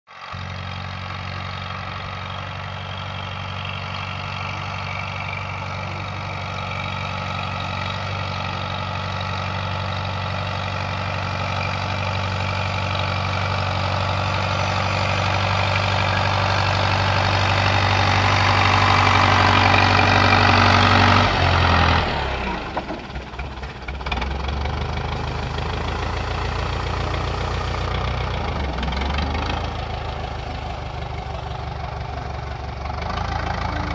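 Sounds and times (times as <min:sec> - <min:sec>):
tractor engine running: 0:00.1 - 0:33.9.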